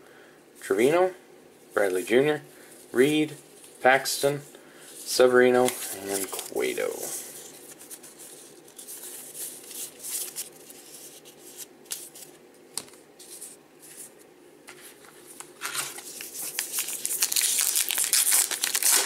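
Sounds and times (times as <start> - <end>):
cards sliding and flicking: 7.7 - 14.1
foil wrapper crinkling: 15.6 - 19.0.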